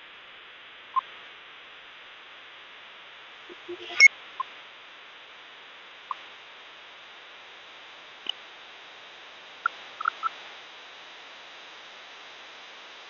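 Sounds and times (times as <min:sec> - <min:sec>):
sharp high chirps: 0:03.5 - 0:04.1.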